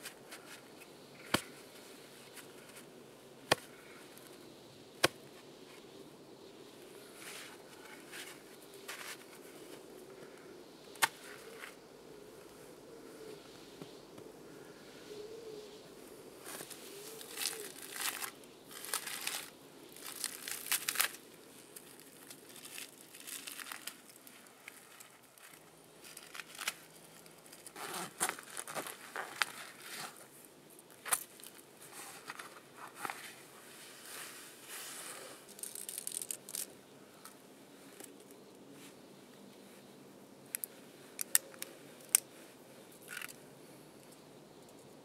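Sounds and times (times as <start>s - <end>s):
twigs snapping and cracking: 16.5s - 29.7s, 30.9s - 31.6s, 35.5s - 37.4s, 40.5s - 42.3s, 43.0s - 43.4s.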